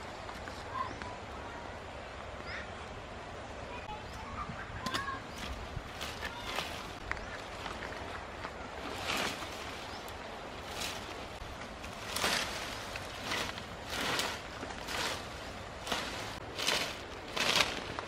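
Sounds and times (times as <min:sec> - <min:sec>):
branches rustling and swishing: 0:03.9 - 0:18.0.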